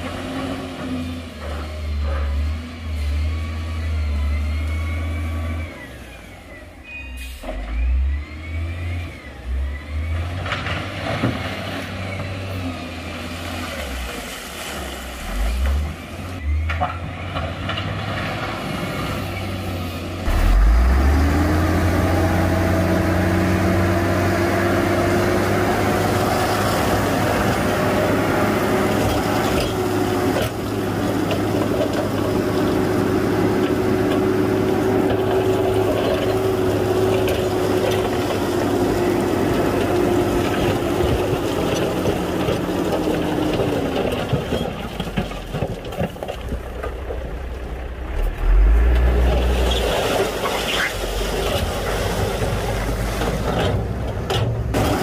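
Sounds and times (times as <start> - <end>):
heavy diesel engine under load: 0.0 - 55.0
deep low rumble: 46.5 - 49.9.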